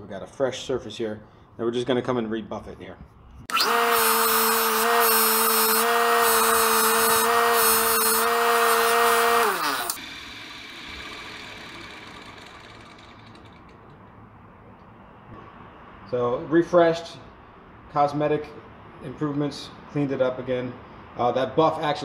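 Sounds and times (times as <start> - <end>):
steel blade buffed on wheel: 3.5 - 13.7
bench grinder whirring: 3.5 - 14.1.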